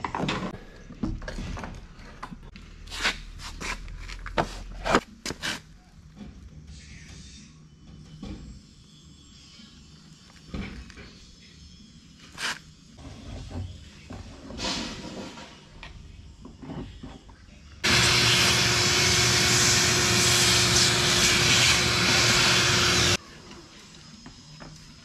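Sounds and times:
shop vacuum running: 17.8 - 23.2.

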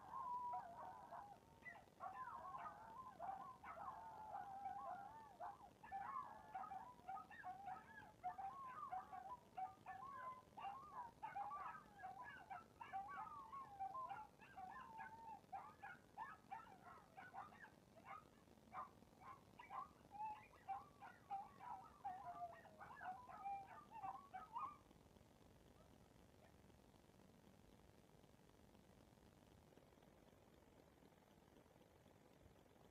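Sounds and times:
small dog whining: 0.0 - 24.8.

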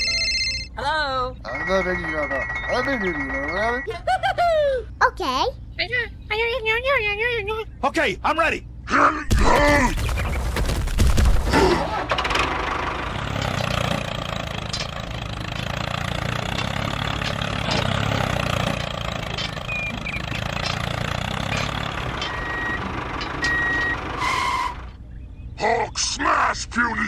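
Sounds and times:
tractor engine running: 9.3 - 25.5.

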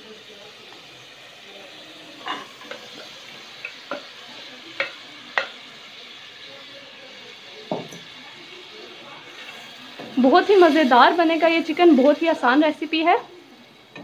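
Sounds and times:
sauce sizzling in a pan: 0.0 - 14.0.

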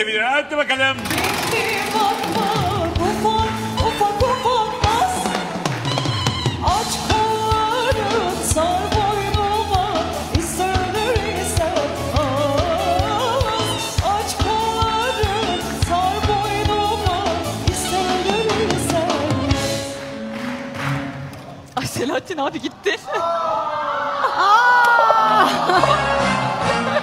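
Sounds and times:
singing over a steady beat: 6.5 - 20.0.

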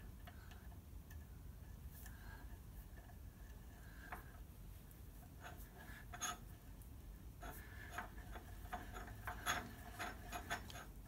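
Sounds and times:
metal clicks and scraping: 7.4 - 11.0.

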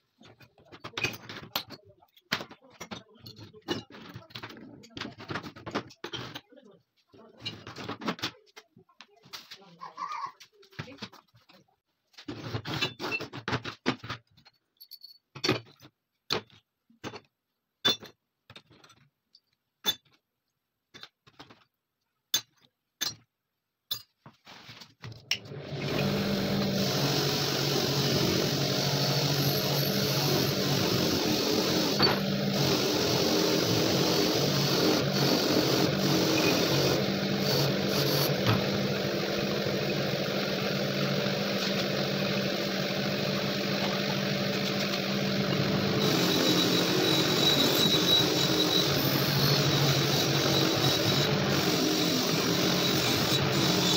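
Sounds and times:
metal parts clinking on wood: 14.4 - 16.6
electric motor with wire brush: 25.4 - 53.9.

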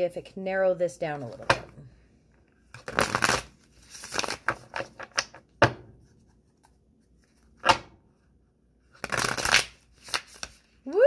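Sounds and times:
cards being shuffled: 2.7 - 5.4, 8.9 - 10.8.

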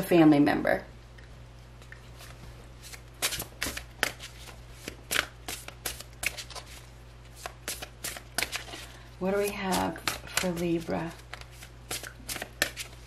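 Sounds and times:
cards snapping while shuffled: 2.9 - 6.7, 7.4 - 8.8, 9.7 - 13.0.

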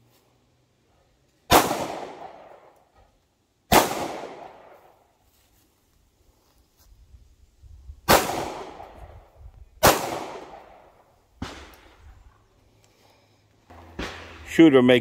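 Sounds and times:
pistol shots: 1.5 - 2.7, 3.7 - 4.8, 8.1 - 9.0, 9.8 - 11.9.

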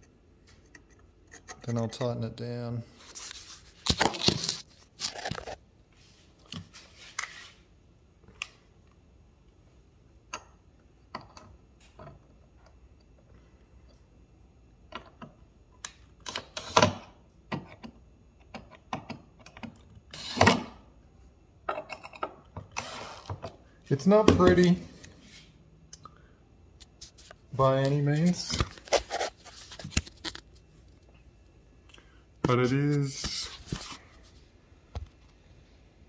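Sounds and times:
tools clicking and knocking: 21.7 - 23.6.

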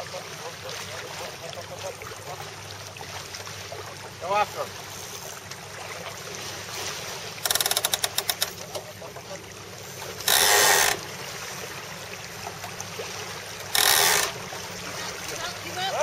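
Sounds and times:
wind and water hiss: 0.0 - 16.0
deck hardware ratcheting clicks: 7.4 - 8.8, 10.3 - 11.0, 13.6 - 14.4.

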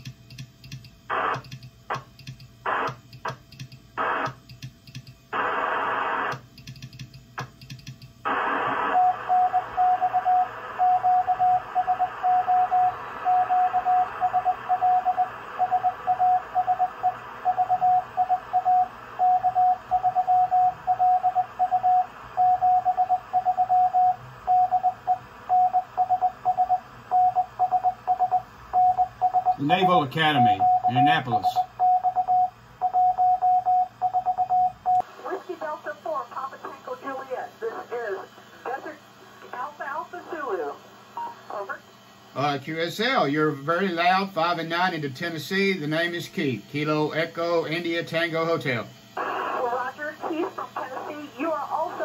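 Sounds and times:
radio receiver hiss: 1.1 - 3.4, 4.0 - 4.4, 5.3 - 6.5, 8.2 - 9.3, 35.0 - 52.0
morse code tone: 8.9 - 35.0.

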